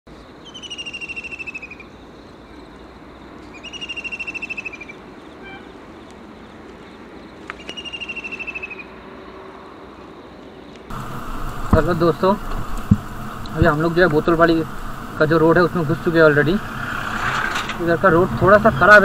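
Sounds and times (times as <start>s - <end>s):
background hiss: 10.9s - 19.0s.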